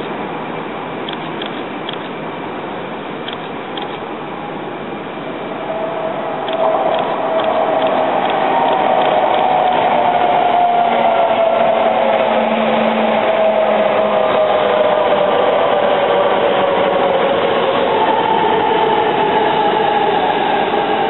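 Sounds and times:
high-speed train rushing past: 0:00.0 - 0:21.0
higher whine: 0:04.2 - 0:16.4
train whine sliding lower: 0:04.3 - 0:21.0.

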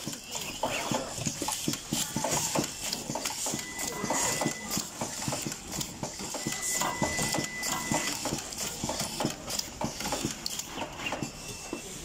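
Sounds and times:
machine mechanical clicks and taps: 0:00.0 - 0:11.4.

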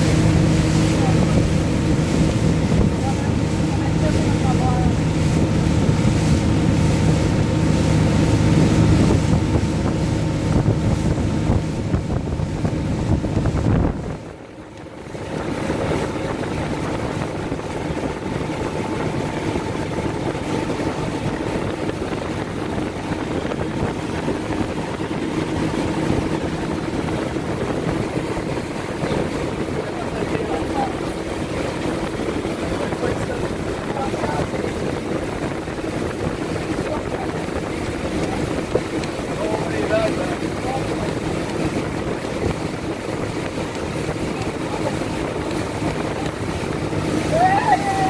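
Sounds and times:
motorboat engine running: 0:00.0 - 0:48.0
rushing wake water: 0:00.0 - 0:48.0
wind on microphone: 0:00.0 - 0:48.0.

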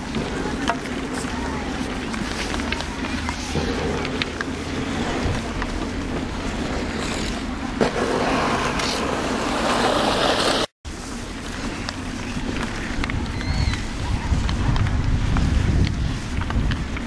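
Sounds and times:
ice skate blades scraping: 0:00.0 - 0:17.0
wind on microphone: 0:11.6 - 0:17.0.

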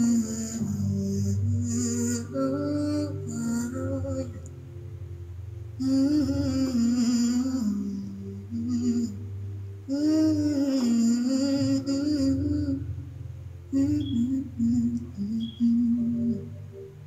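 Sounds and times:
woman humming a melody: 0:05.8 - 0:12.9, 0:13.7 - 0:16.9.

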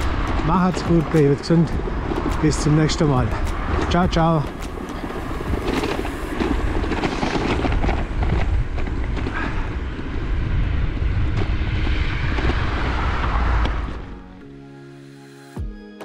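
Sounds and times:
bike rattles and knocks: 0:00.0 - 0:10.1
wind rumbling on microphone: 0:00.0 - 0:14.4.

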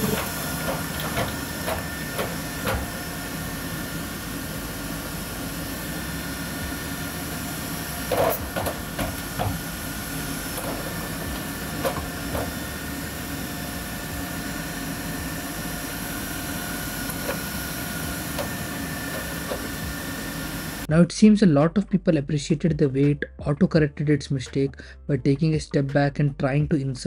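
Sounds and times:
clunks against metal rack: 0:00.0 - 0:02.9
faint motor whine: 0:00.0 - 0:20.9.

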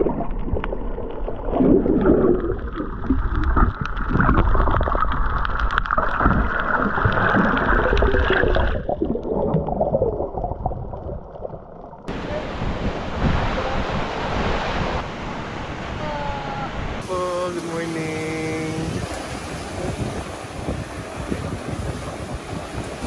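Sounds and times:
underwater rumble and bubbling: 0:00.0 - 0:16.0, 0:19.0 - 0:23.0
small underwater clicks: 0:00.4 - 0:09.3
wind: 0:12.0 - 0:23.0
waves washing over rocky shore: 0:12.1 - 0:23.0.

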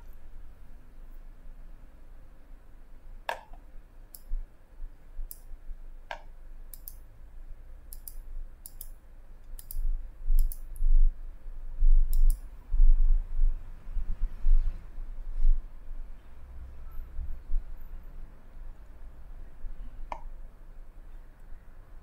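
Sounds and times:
computer mouse clicking: 0:03.3 - 0:04.3, 0:06.1 - 0:07.0, 0:07.9 - 0:09.8, 0:10.4 - 0:10.8, 0:12.1 - 0:12.4.

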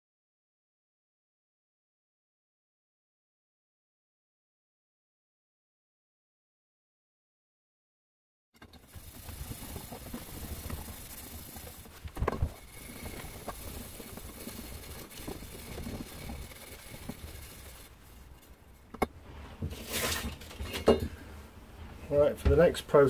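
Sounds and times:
loud scrape: 0:08.6 - 0:18.7, 0:19.3 - 0:20.9
hand scrubbing copper pipe: 0:08.7 - 0:18.6.

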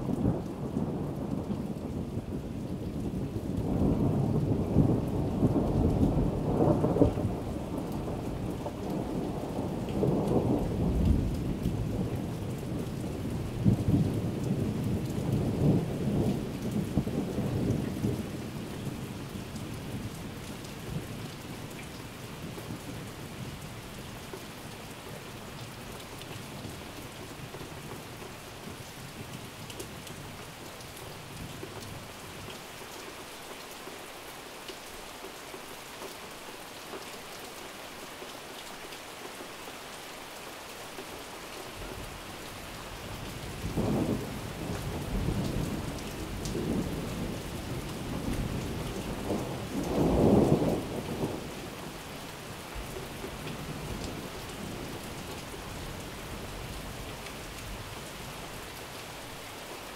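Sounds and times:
steady rain falling: 0:00.0 - 0:59.9
thunder rumbling: 0:43.5 - 0:52.0.

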